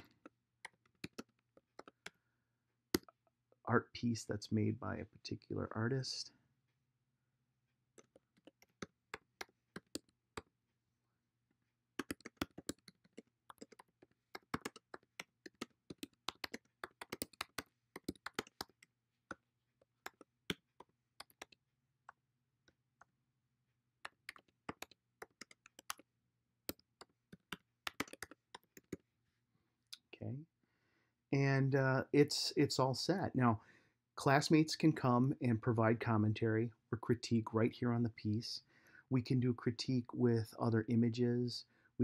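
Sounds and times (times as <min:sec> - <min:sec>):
typing on keyboard: 0:00.0 - 0:02.1, 0:08.0 - 0:10.2, 0:12.0 - 0:18.9, 0:20.0 - 0:21.6, 0:24.0 - 0:26.0, 0:26.7 - 0:29.0.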